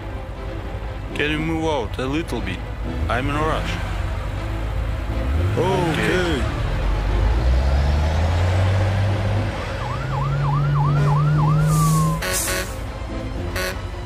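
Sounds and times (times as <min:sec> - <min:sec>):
yelping siren: 0:09.7 - 0:12.4
cartoon fire engine horn: 0:09.8 - 0:12.9, 0:13.5 - 0:13.9.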